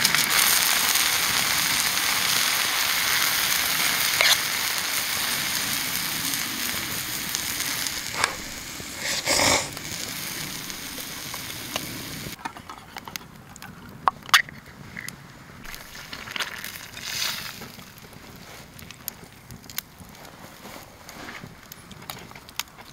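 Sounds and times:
noodles sizzling in a pan: 0:00.0 - 0:12.4
fire clicks and crackles: 0:00.0 - 0:22.9
chopsticks stirring: 0:04.2 - 0:04.4, 0:08.0 - 0:11.8.

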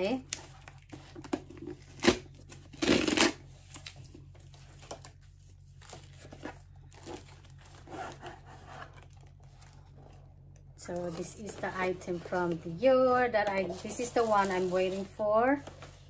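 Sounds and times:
packaging tearing and rustling: 0:00.3 - 0:10.2.

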